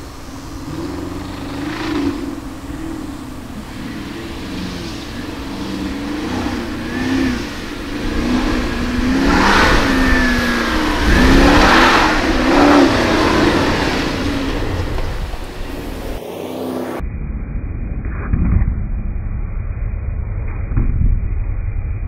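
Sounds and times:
engine revving: 0.0s - 17.0s
tyres spraying dirt: 0.0s - 17.0s.

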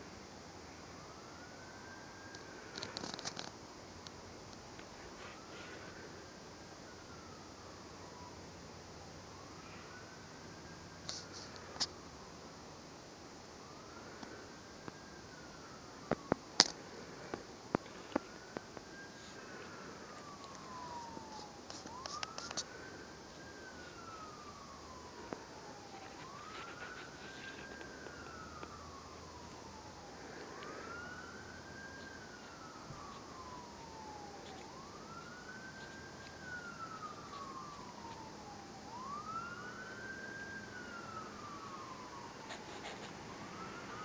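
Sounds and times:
siren wailing: 5.0s - 12.4s, 13.6s - 44.0s.

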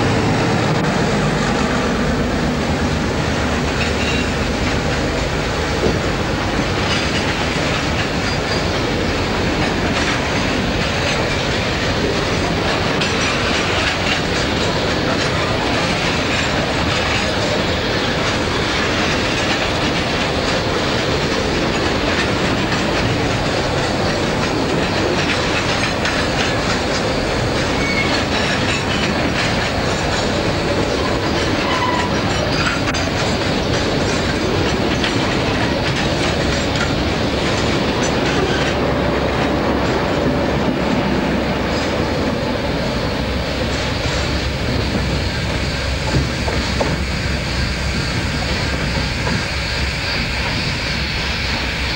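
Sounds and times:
train wheels clicking over rail joints: 0.0s - 51.9s
wheel squeals: 8.1s - 8.9s, 26.4s - 29.4s, 30.2s - 37.0s.

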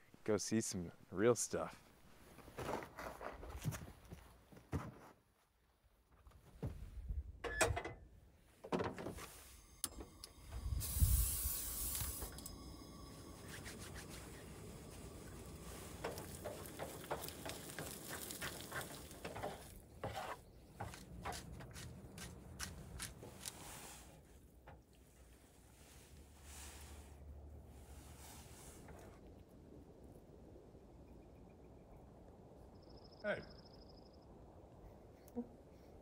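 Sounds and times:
eggs sizzling in a pan: 10.6s - 19.7s.

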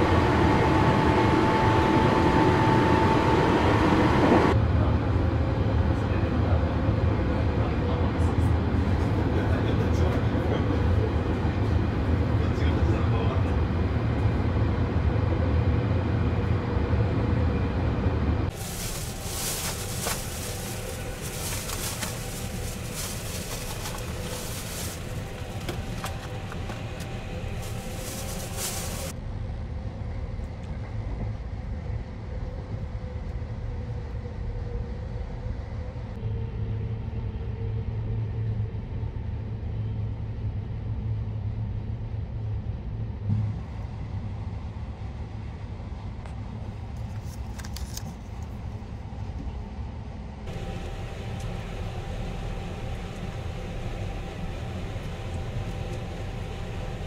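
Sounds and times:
train rumble inside compartment: 0.0s - 57.0s
faint steady hum: 50.5s - 57.0s.

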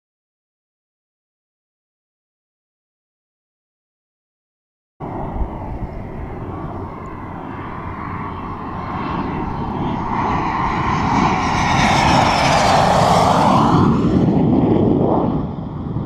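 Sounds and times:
jet engine whine: 5.0s - 16.0s.

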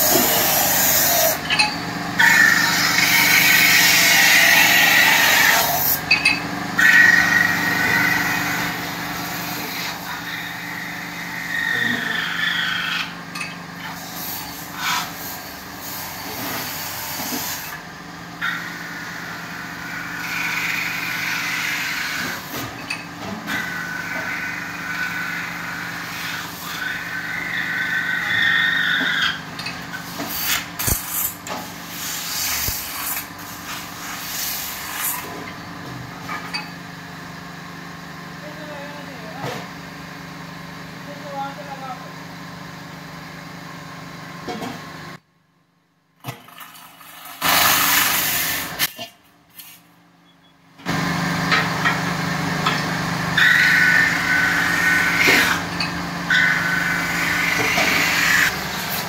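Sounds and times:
cutting bar scraping metal: 0.0s - 13.2s, 52.6s - 59.0s
lathe humming: 0.0s - 13.3s, 18.1s - 22.5s, 23.5s - 29.5s, 50.9s - 59.0s.

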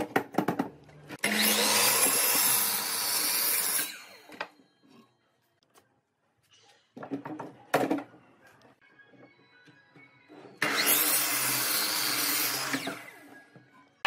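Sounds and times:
electric power tool running: 1.2s - 4.2s, 10.6s - 13.2s.

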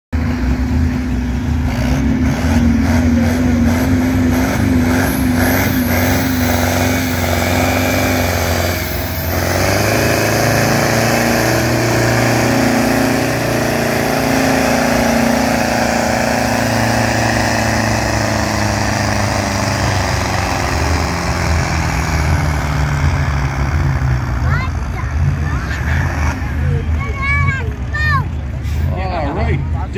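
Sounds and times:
tractor engine at full throttle: 0.1s - 29.9s.

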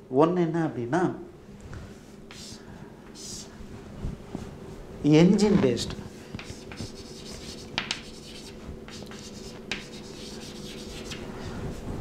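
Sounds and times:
chalk scratching on chalkboard: 2.3s - 2.6s, 3.2s - 3.5s, 6.4s - 11.3s
chalk taps: 2.3s - 2.6s, 6.3s - 11.2s.

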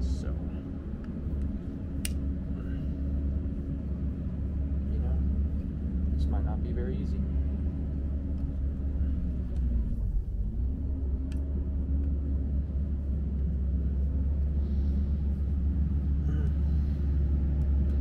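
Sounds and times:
faint droning tone: 0.0s - 18.0s
low rumble: 0.0s - 18.0s
light click: 1.0s - 2.2s.

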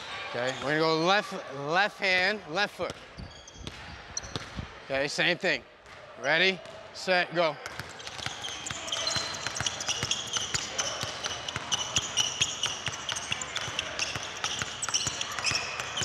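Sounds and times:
sneaker squeaks: 0.4s - 1.0s, 2.9s - 4.6s, 7.6s - 16.0s
basketballs bouncing on hardwood: 7.6s - 16.0s.

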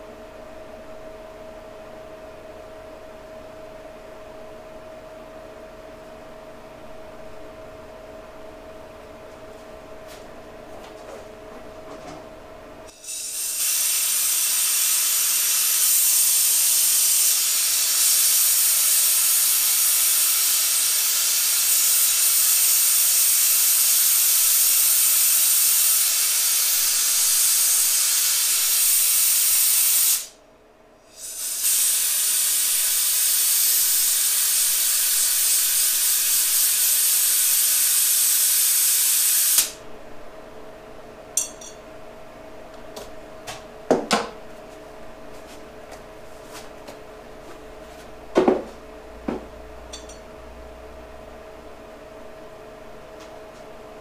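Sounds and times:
gas torch flame hissing: 12.9s - 30.3s, 31.1s - 39.8s
ringing metal clink: 41.4s - 41.8s, 49.9s - 50.2s.

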